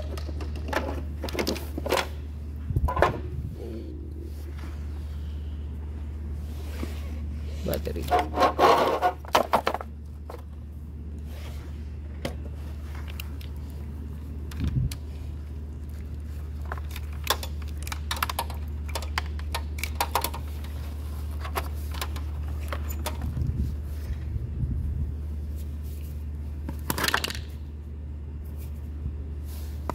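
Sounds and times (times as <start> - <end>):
steady low hum: 0.0 - 29.9
connectors and plastic case rattling: 16.6 - 23.5.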